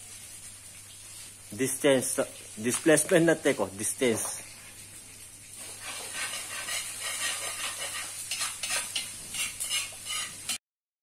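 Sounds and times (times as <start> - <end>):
food sizzling: 0.0 - 10.6
metal ladle scraping a wok: 5.6 - 10.6.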